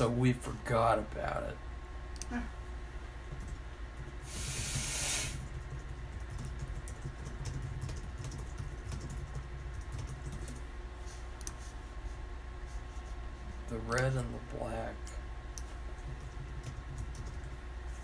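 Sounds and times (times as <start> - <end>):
steady low hum: 0.0 - 18.0
loud hiss: 4.2 - 5.4
computer keys clicking: 5.5 - 10.7, 11.4 - 11.6, 15.6 - 17.6.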